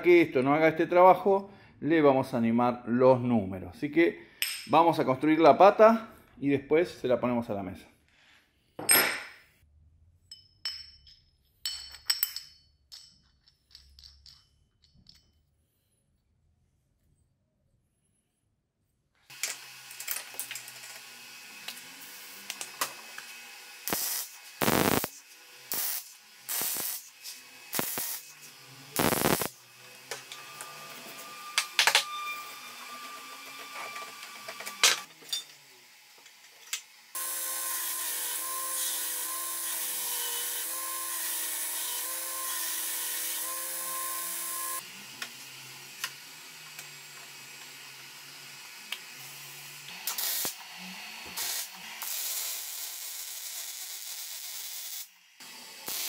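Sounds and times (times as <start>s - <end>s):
power tool running: 19.3s - 56.0s.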